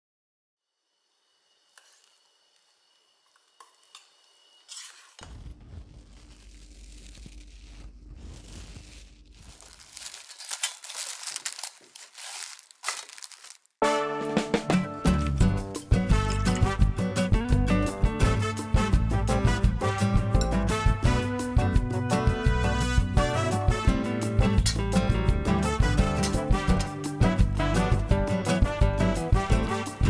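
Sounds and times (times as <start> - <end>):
cling film crinkling: 4.7 - 13.8.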